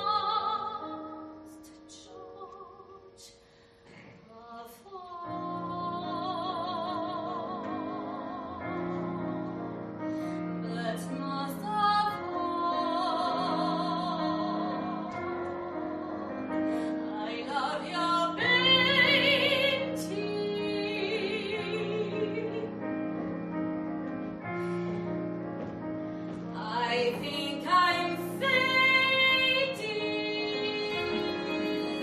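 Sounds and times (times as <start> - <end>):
woman singing with vibrato: 0.0 - 3.3, 4.3 - 9.4, 10.6 - 22.8, 26.5 - 32.0
piano: 0.0 - 32.0.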